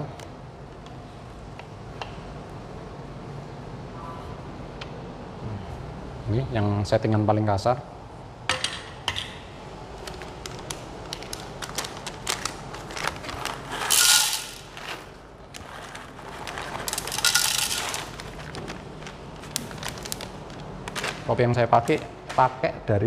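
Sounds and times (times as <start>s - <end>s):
coffee beans rattling into grinder: 10.1s - 20.6s.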